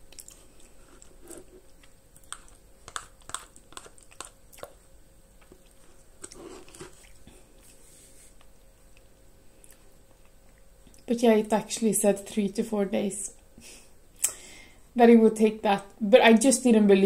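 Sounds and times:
spoon scraping plastic tub: 0:05.9 - 0:07.0.

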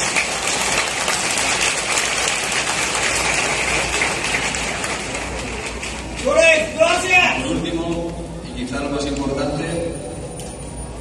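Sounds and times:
stadium crowd applauding: 0:00.0 - 0:07.2.

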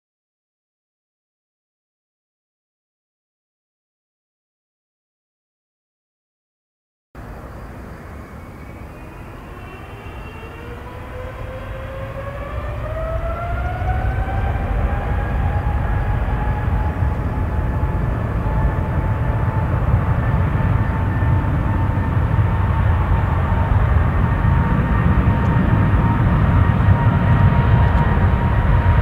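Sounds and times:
jet engine deep rumble: 0:07.2 - 0:29.0
jet engine whine: 0:07.2 - 0:29.0.

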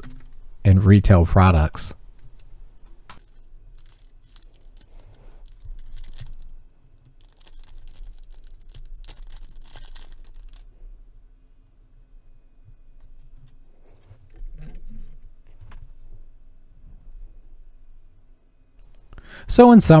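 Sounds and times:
wrapper crinkling and tearing: 0:03.2 - 0:10.7.

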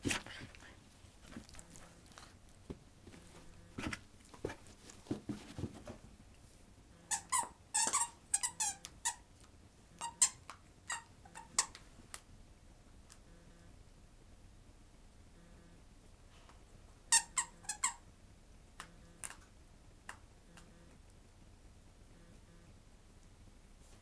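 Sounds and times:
squeaky toy squeaks: 0:07.1 - 0:09.2, 0:10.0 - 0:11.7, 0:17.1 - 0:18.0.

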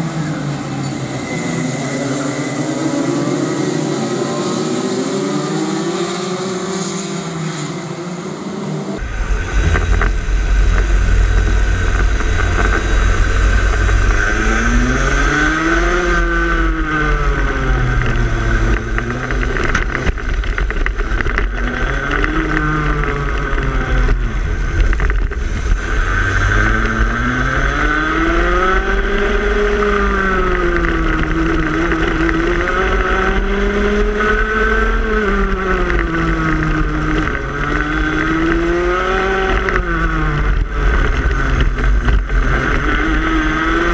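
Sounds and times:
kart engine revving: 0:00.0 - 0:43.9
steady low rumble: 0:09.0 - 0:34.6.

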